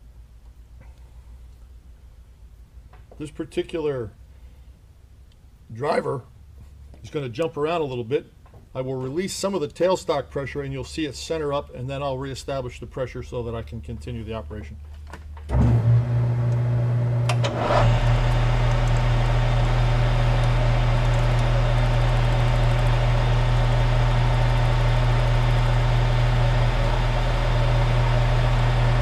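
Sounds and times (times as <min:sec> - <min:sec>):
metal lathe running: 0:17.2 - 0:29.0.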